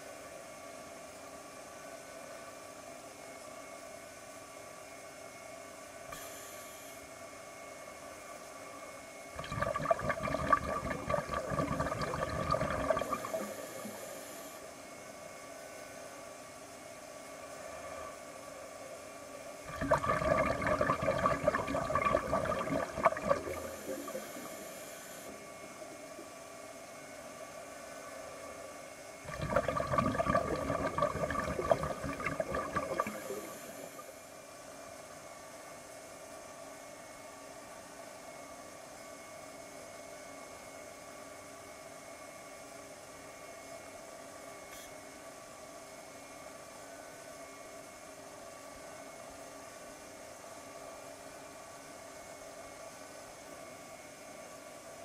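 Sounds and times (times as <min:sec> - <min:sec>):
faint underwater hum: 0:05.1 - 0:35.8
diver's exhaled air bubbling: 0:09.4 - 0:14.4, 0:19.7 - 0:25.1, 0:29.3 - 0:34.2.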